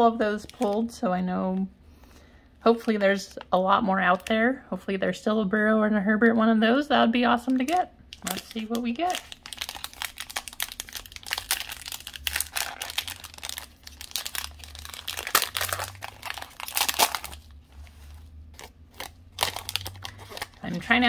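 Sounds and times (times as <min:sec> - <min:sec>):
plastic wrapper crinkling: 0:00.0 - 0:01.1, 0:07.3 - 0:21.0.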